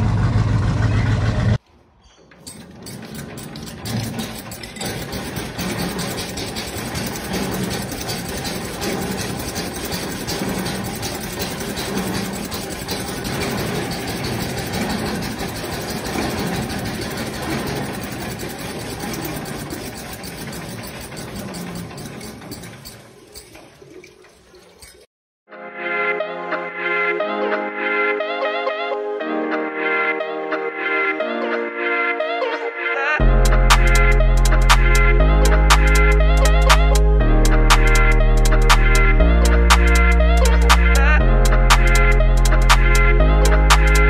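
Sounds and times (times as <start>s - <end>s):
air-cooled engine running: 2.8s - 23.0s.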